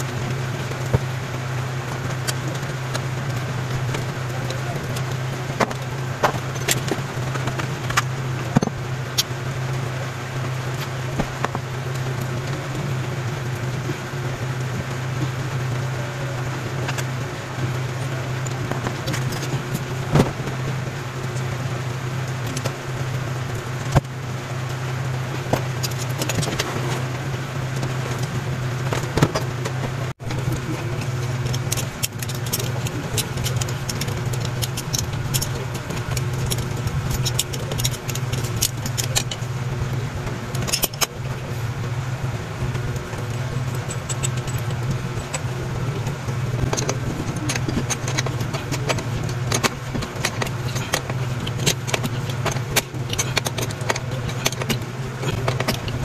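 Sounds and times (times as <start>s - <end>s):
sharp clicks and metallic clinks: 0.0s - 9.8s, 22.2s - 42.0s, 42.6s - 56.0s
low mechanical hum: 0.0s - 56.0s.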